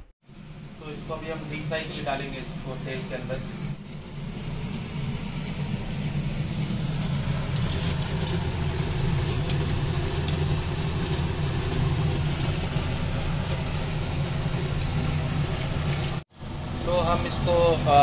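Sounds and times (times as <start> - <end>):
steady low hum: 0.0 - 18.0
food sizzling in hot oil: 4.1 - 16.2
oil crackles: 7.2 - 16.2.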